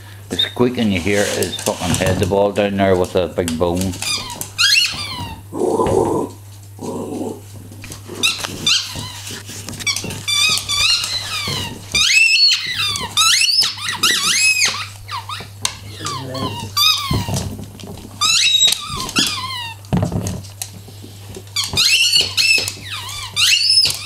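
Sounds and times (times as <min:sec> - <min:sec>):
squeaky toy squeaking: 0:04.0 - 0:05.4, 0:08.2 - 0:09.2, 0:09.8 - 0:17.4, 0:18.2 - 0:19.8, 0:21.6 - 0:24.0.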